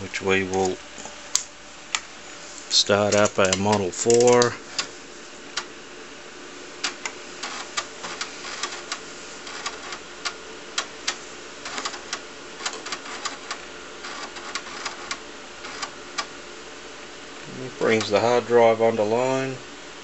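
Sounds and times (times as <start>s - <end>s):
faint steady hum: 0.0s - 20.0s
floppy disk drive clicking: 2.7s - 5.8s, 6.8s - 16.4s, 17.8s - 18.4s.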